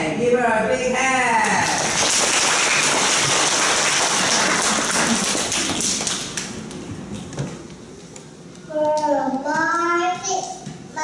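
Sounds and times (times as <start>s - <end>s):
audience applauding: 1.6s - 6.4s.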